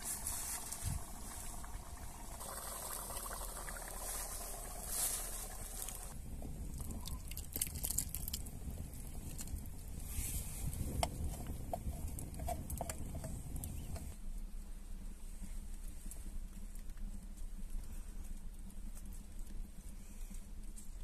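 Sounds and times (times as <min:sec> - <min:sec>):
campfire crackling: 0:00.0 - 0:14.2
liquid pouring into bowl: 0:01.3 - 0:04.8.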